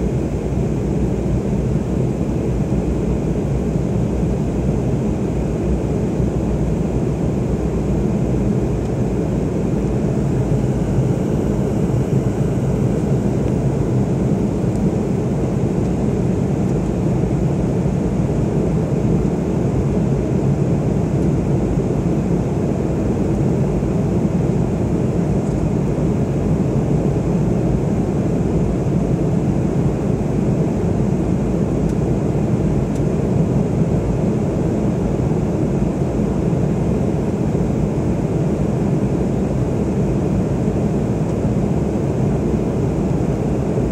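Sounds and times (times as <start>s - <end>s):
airliner cabin noise: 6.7s - 18.1s.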